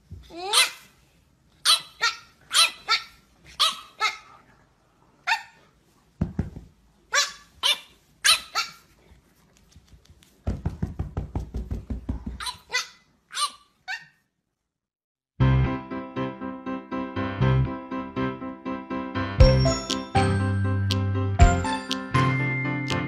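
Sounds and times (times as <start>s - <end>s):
puppy yapping: 1.6s - 4.3s, 7.1s - 8.9s, 12.4s - 14.2s.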